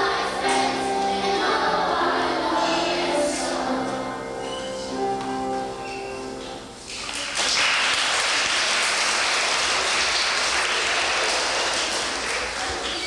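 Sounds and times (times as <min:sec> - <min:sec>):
audience clapping: 0:06.9 - 0:13.0.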